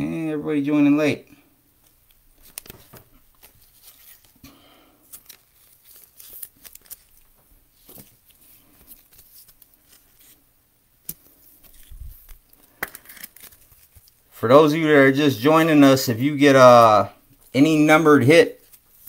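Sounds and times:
plastic wrapper crinkling: 1.8 - 10.4, 11.0 - 14.4.

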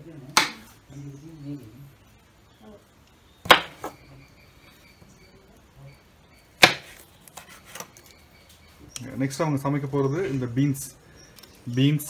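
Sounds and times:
knife chopping on wooden board: 3.4 - 4.0, 6.6 - 7.9.

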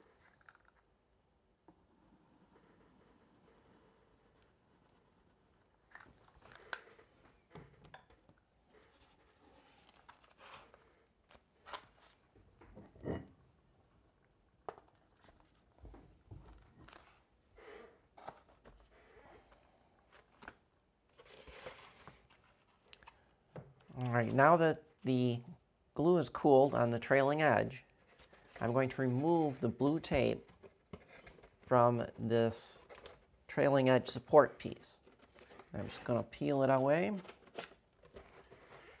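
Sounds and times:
paper board rustling: 2.4 - 12.2, 28.0 - 33.2.

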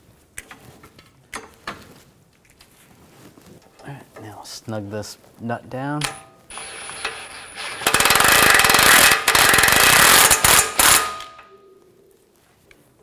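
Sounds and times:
impact wrench rattling: 6.0 - 11.5.

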